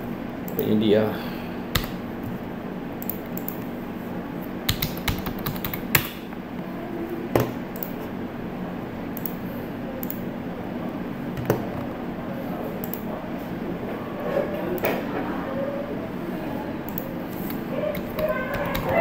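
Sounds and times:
low room hum: 0:00.0 - 0:19.0
keyboard typing: 0:01.7 - 0:02.4, 0:03.0 - 0:03.7, 0:04.6 - 0:06.2, 0:12.8 - 0:13.1, 0:16.8 - 0:19.0
computer mouse clicks: 0:03.0 - 0:03.7, 0:07.4 - 0:08.0, 0:09.2 - 0:09.4, 0:10.0 - 0:10.2, 0:12.8 - 0:13.1, 0:16.9 - 0:19.0.

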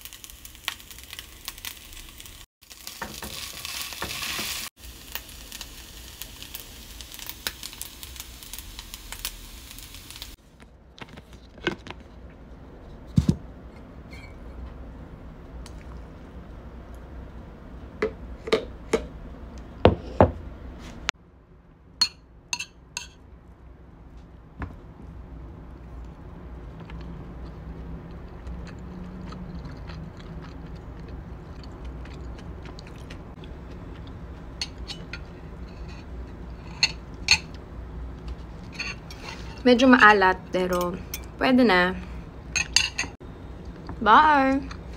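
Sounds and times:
rice sizzling in a frying pan: 0:00.0 - 0:10.4
glass and dishes clinking: 0:42.6 - 0:43.2.

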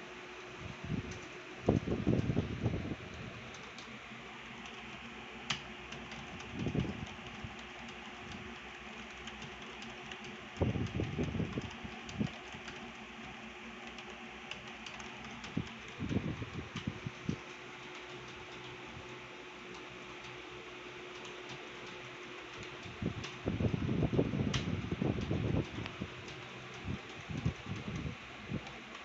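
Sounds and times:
fan hum: 0:00.0 - 0:29.0
keyboard typing clicks: 0:04.6 - 0:20.4.

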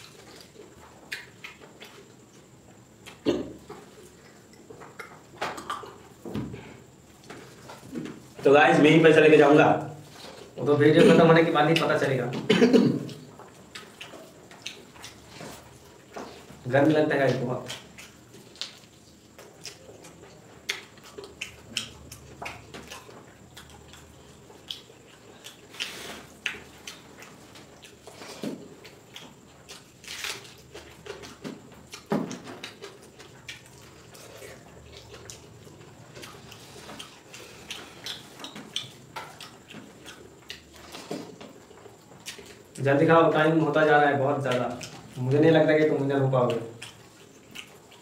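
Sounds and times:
wet squishing and smacking: 0:11.3 - 0:48.0.

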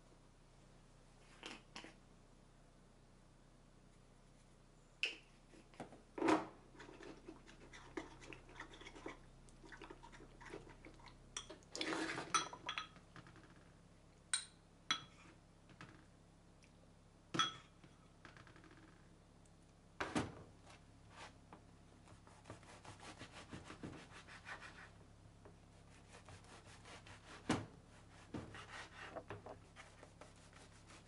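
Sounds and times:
spoon stirring thick mixture: 0:06.8 - 0:12.7
spoon clinking on glass: 0:17.4 - 0:17.7.

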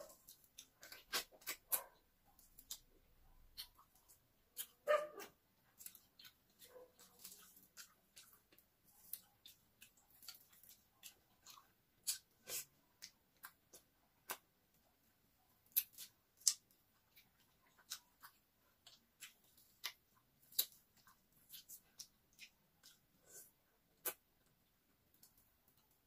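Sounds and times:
chewing: 0:00.0 - 0:04.8, 0:05.7 - 0:15.0, 0:15.6 - 0:26.0.

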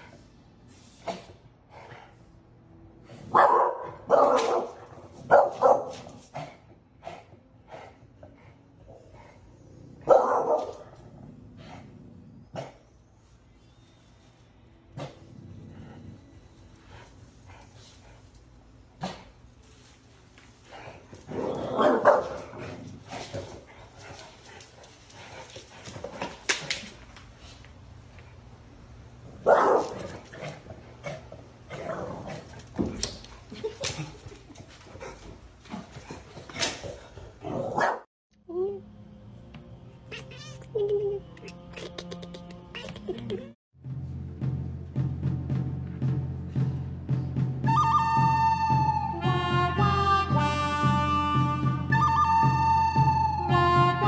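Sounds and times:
dog barking: 0:03.3 - 0:06.1, 0:10.0 - 0:10.9, 0:21.7 - 0:22.6, 0:29.4 - 0:30.0, 0:37.5 - 0:38.1.

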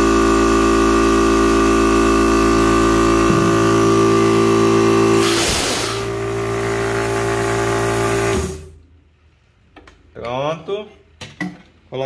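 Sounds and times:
air compressor humming: 0:00.0 - 0:08.8
short hiss of air from valve: 0:05.2 - 0:06.1.

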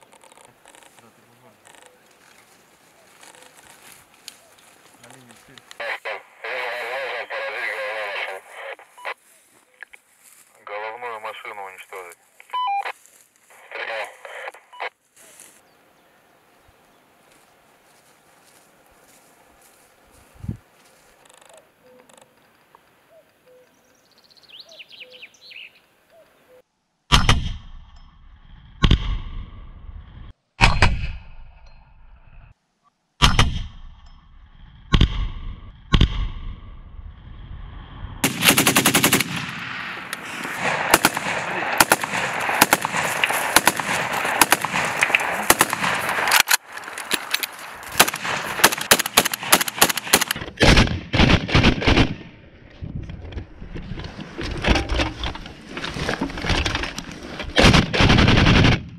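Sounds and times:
rapid automatic gunfire: 0:38.2 - 0:39.7, 0:40.6 - 0:46.3, 0:48.0 - 0:52.2.

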